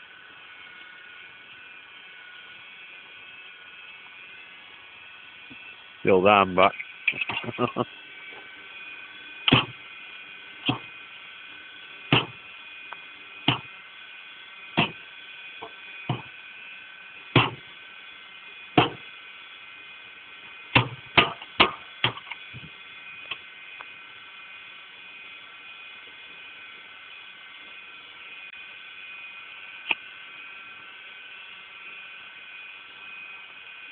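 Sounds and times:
cement mixer whining: 0.0s - 33.9s
sharp knocks: 12.1s - 12.4s.

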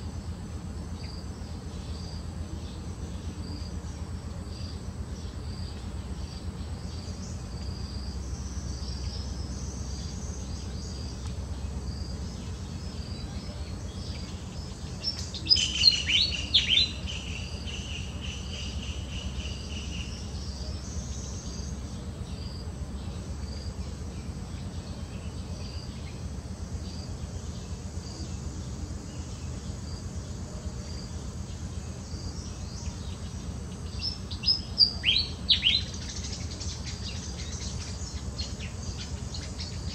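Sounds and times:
insect chirring: 0.0s - 39.9s
high falling chirping calls: 12.4s - 22.6s, 32.4s - 39.9s.

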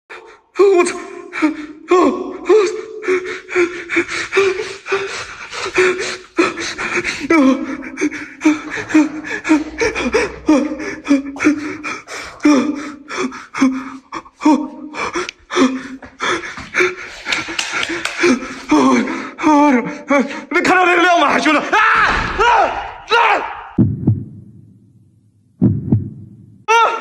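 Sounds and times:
person panting frightened: 0.1s - 20.5s.

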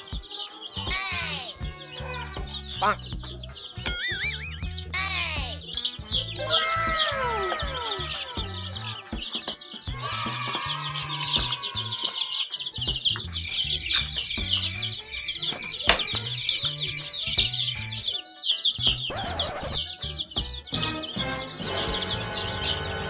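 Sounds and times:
background music with bass: 0.0s - 23.0s
chicks peeping: 0.0s - 23.0s.

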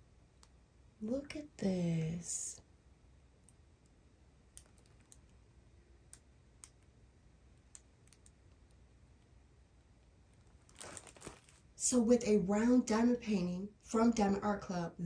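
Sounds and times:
faint small clicks: 3.4s - 5.4s, 6.1s - 6.9s, 7.6s - 9.3s.

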